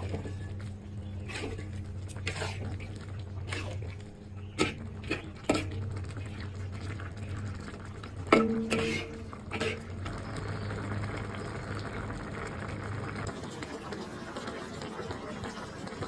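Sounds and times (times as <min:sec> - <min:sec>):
steady hum: 0:00.0 - 0:13.0
sauce bubbling in a wok: 0:00.0 - 0:16.0
metal spatula clanging on wok: 0:08.3 - 0:09.8.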